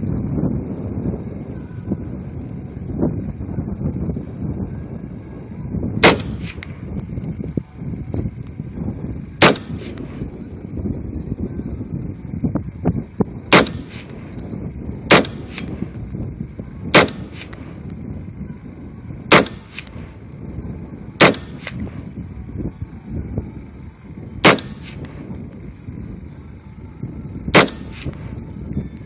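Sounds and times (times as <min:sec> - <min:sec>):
rifle shots: 0:06.0 - 0:06.8, 0:09.4 - 0:10.6, 0:13.5 - 0:14.5, 0:15.1 - 0:16.1, 0:17.0 - 0:17.9, 0:19.3 - 0:20.2, 0:21.2 - 0:22.0, 0:24.4 - 0:25.2, 0:27.6 - 0:28.5.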